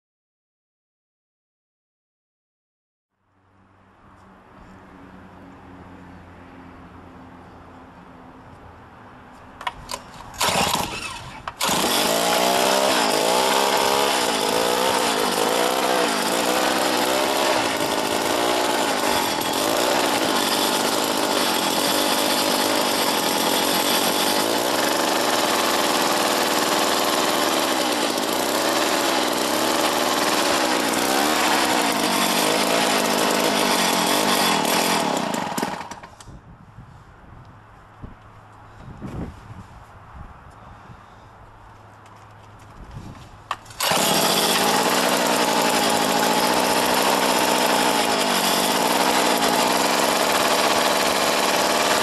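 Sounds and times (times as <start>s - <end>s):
auger engine starting and running: 9.6s - 36.3s, 43.5s - 52.0s.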